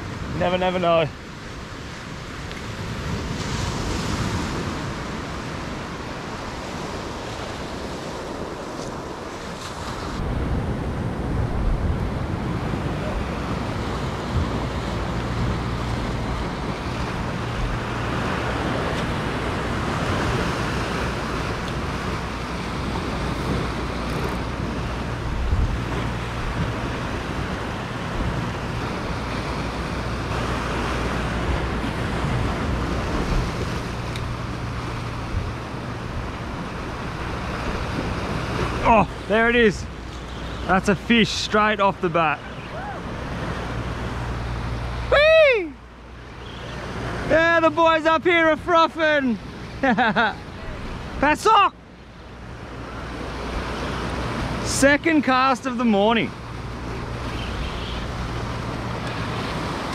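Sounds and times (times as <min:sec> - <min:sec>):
ocean surf breaking on shore: 0:00.0 - 0:59.9
wind on microphone: 0:07.4 - 0:39.2.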